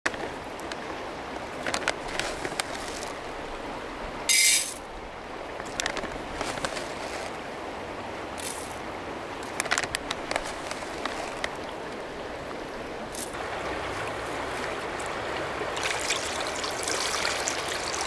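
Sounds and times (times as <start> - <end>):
river rushing: 0.2 - 18.0.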